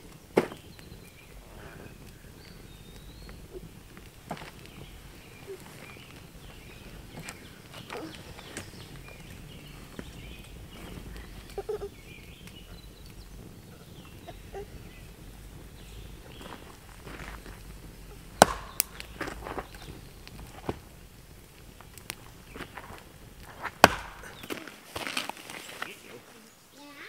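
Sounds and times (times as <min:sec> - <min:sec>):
faint bird chirps: 0:00.5 - 0:20.6.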